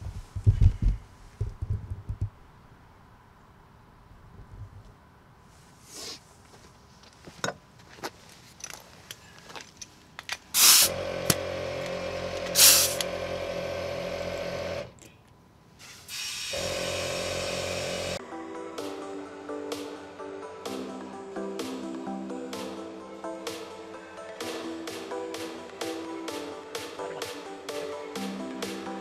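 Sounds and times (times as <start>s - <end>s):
air hissing into tyre: 5.8s - 6.3s, 10.6s - 11.0s, 12.5s - 13.1s, 15.8s - 18.2s
clicks of chuck and hose: 8.6s - 13.2s.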